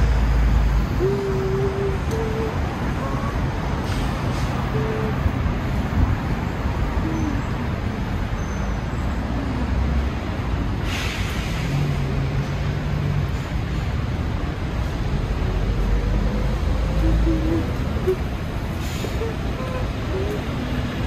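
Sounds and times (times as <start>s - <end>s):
rumble of car traffic: 0.0s - 21.0s
brief hiss: 10.8s - 11.8s.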